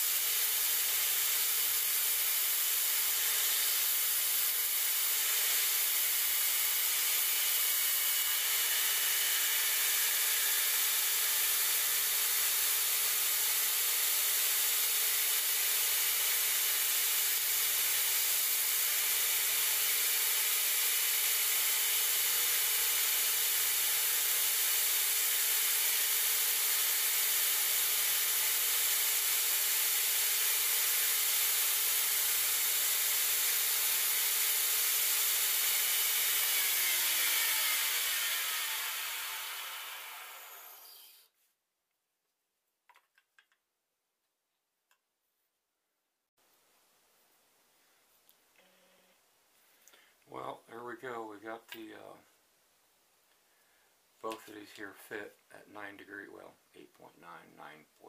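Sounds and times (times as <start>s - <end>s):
belt grinder running: 0.0s - 41.2s.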